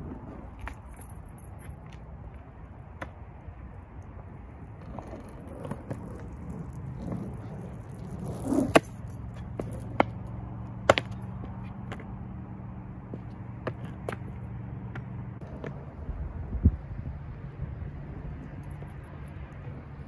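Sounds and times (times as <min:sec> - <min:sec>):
skateboard wheels rolling on concrete: 0:00.0 - 0:20.0
skateboard clacks: 0:04.8 - 0:12.1.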